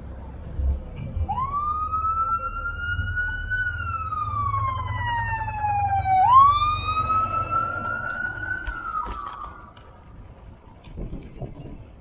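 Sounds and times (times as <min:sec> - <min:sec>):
emergency siren wailing: 0:01.2 - 0:09.8.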